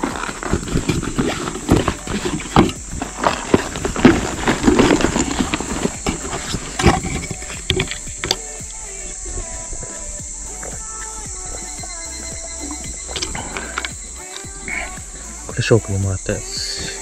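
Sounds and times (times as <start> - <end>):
fishing gear clacking and knocking: 0.0 - 17.0.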